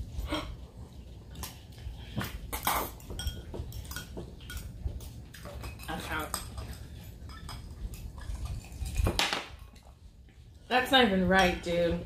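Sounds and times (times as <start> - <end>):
forks clinking on glass bowls: 2.6 - 9.8.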